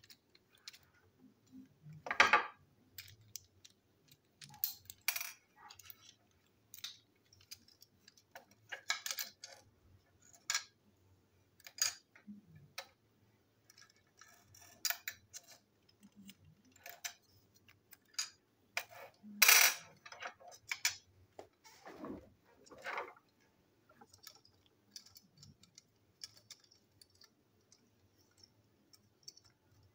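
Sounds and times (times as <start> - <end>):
plastic toy parts clicking: 0.0 - 2.1, 2.8 - 10.8, 13.6 - 21.1, 23.9 - 29.9.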